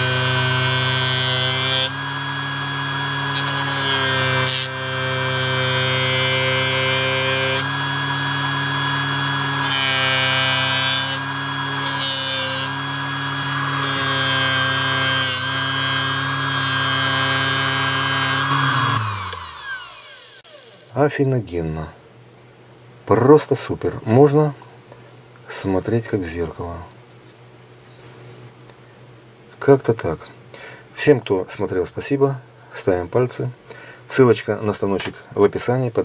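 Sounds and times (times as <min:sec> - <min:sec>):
polishing machine motor whirring: 0:00.0 - 0:21.0.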